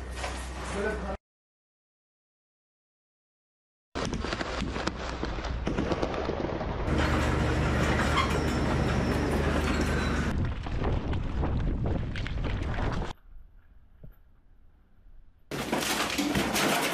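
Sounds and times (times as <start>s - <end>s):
tracked vehicle engine hum: 6.8s - 10.3s
clattering track noise: 6.9s - 10.4s.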